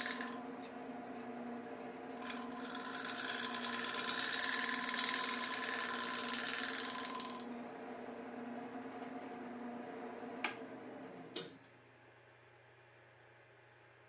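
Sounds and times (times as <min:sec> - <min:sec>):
turning tool scraping wood: 0:00.0 - 0:01.4, 0:02.2 - 0:07.5
wood lathe humming: 0:00.0 - 0:10.9.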